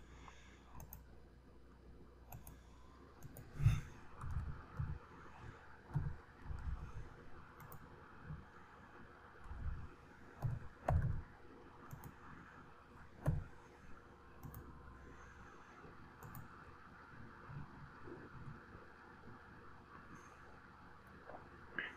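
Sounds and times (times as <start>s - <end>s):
mouse clicks: 0.8s - 1.1s, 2.3s - 2.6s
keyboard keystrokes: 10.4s - 11.2s.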